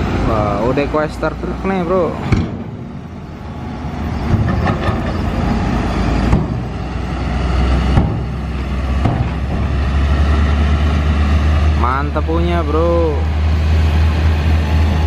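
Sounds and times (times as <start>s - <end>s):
diesel truck engine rumble: 0.0s - 15.0s
sharp knocks: 7.9s - 8.4s, 9.0s - 9.7s.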